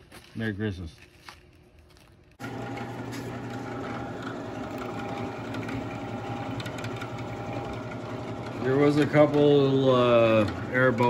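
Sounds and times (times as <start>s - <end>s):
drill press motor humming: 2.4s - 11.0s
router bit picking at metal: 4.1s - 11.0s.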